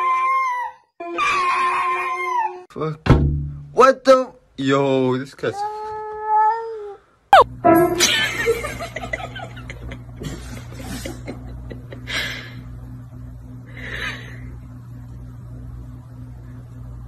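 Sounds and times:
steady low hum: 7.4 - 17.0
person laughing: 8.0 - 12.6.

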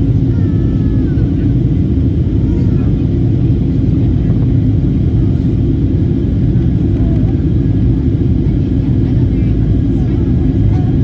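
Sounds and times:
airplane cabin rumble: 0.0 - 11.0.

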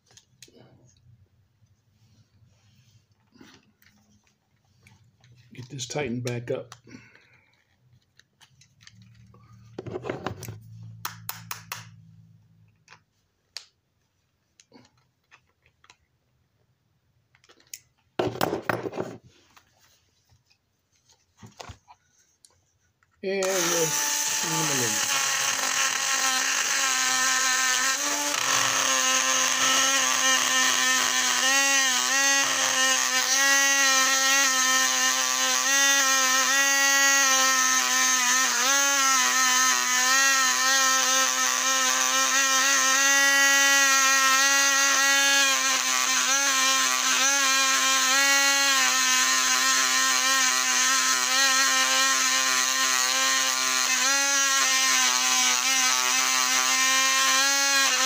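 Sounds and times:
rotary tool wire wheel whining: 23.4 - 58.0.

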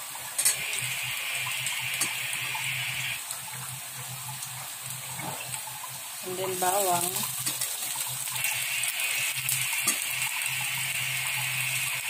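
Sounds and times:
ginger sizzling in hot oil: 0.0 - 12.0.

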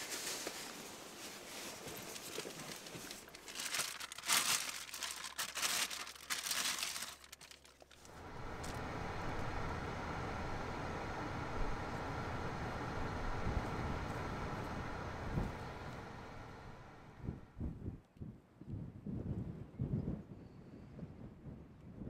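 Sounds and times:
plastic bag crinkling: 1.6 - 8.8
car engine rumble from inside: 8.0 - 17.5.

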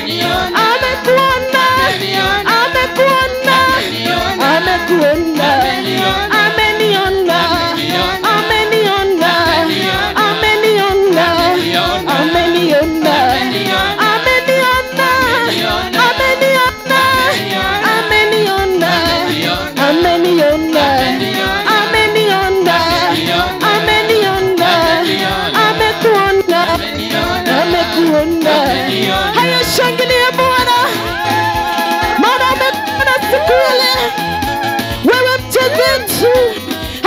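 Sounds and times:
electronic keyboard with beat: 0.0 - 37.0
gospel singers: 0.0 - 37.0.

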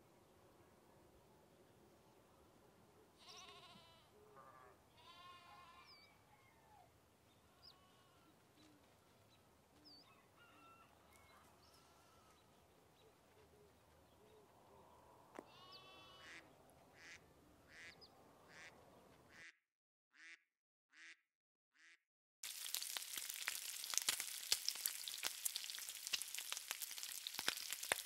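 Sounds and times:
short pitched animal cries: 3.2 - 6.2, 15.5 - 16.4.

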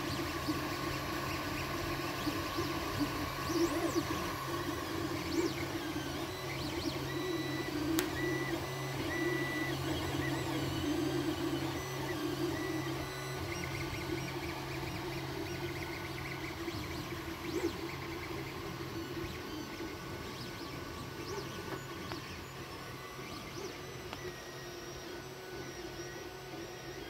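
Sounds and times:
fans humming: 0.0 - 27.0
sharp click: 7.9 - 8.2.

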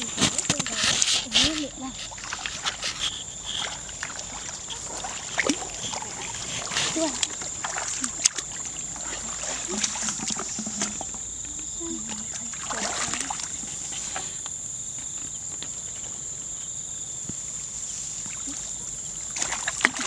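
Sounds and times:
hands splashing in muddy water: 0.0 - 11.3, 12.0 - 13.9, 19.3 - 20.0.

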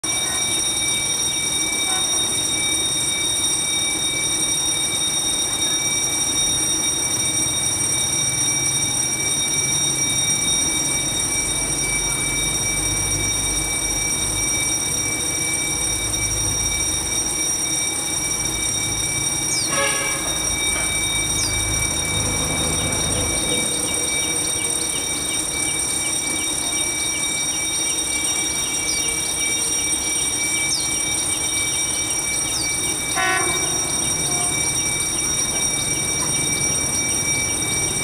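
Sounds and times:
diesel locomotive rumble: 10.0 - 38.0.

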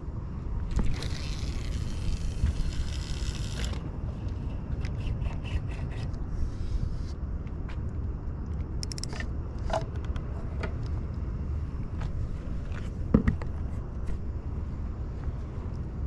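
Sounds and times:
steady low rumble: 0.0 - 16.0
fishing rods clicking and knocking: 8.5 - 10.8.

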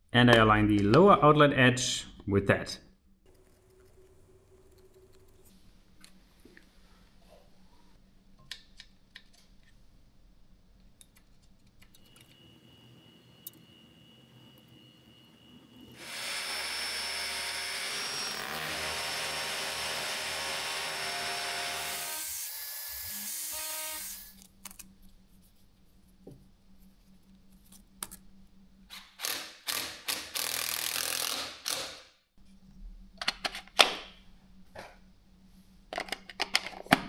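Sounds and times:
power drill boring into wall: 16.0 - 22.6.

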